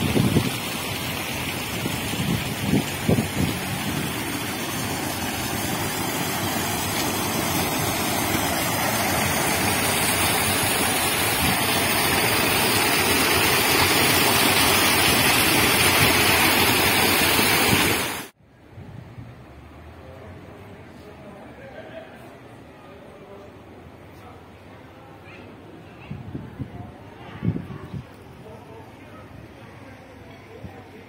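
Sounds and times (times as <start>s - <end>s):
stream water rushing over cascade: 0.0s - 18.4s.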